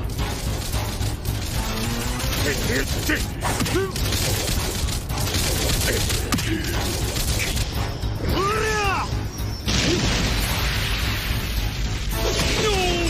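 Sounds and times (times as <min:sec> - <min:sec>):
energy blasts and impacts: 0:09.6 - 0:12.6.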